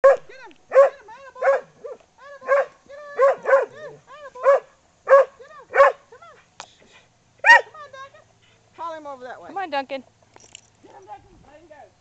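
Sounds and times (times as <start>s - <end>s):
dog yipping: 0.0s - 6.0s, 7.4s - 7.8s
dog barking excitedly: 0.0s - 6.1s, 7.4s - 7.8s.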